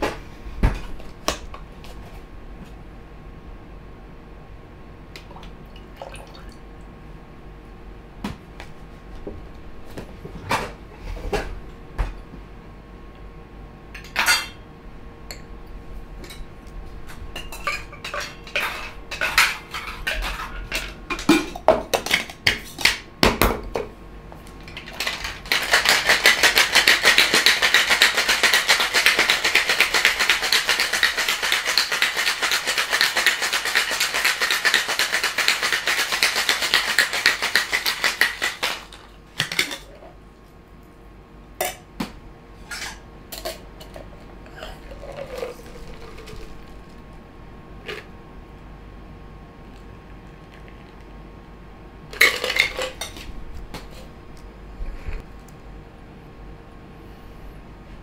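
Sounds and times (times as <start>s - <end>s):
ice rattling in cocktail shaker: 24.8s - 39.9s, 45.0s - 46.9s, 52.2s - 53.2s.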